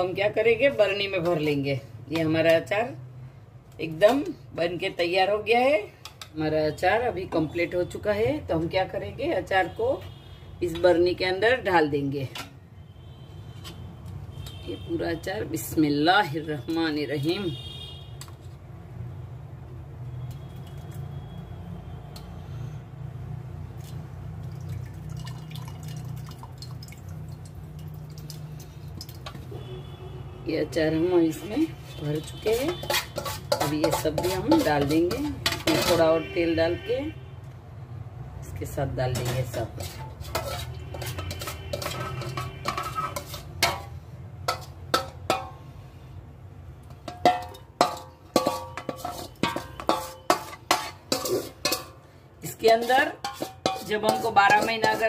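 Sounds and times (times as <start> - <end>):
wet drips and plops: 23.7 - 29.6
spoon scooping pickle in bowl: 31.8 - 36.0, 39.2 - 43.9, 47.0 - 51.8.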